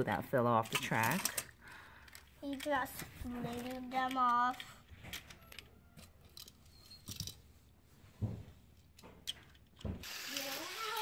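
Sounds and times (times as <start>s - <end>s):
plastic toy train coaches clicking: 0.6s - 7.4s, 8.8s - 11.0s
toy train whirring on track: 2.1s - 5.7s, 10.0s - 11.0s.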